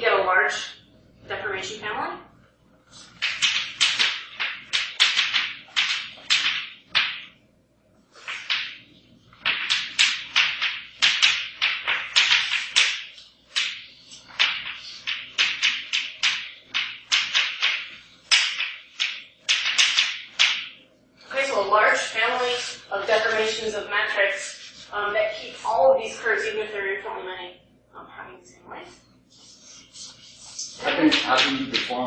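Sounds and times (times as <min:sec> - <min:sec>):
chalk scratching on blackboard: 0:21.9 - 0:26.2, 0:29.3 - 0:31.9.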